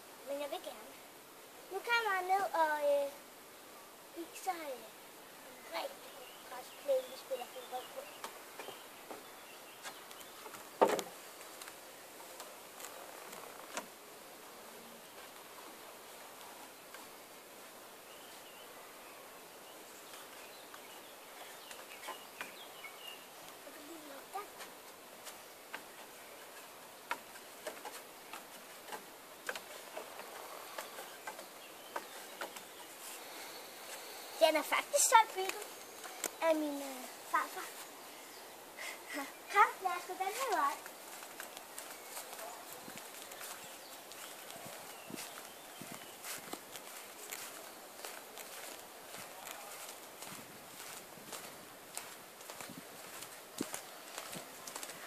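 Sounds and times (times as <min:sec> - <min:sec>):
faint outdoor hiss: 0:00.0 - 0:55.0
feet knocking on wooden boards: 0:08.2 - 0:11.2
knocks on wooden ladder: 0:10.8 - 0:11.1.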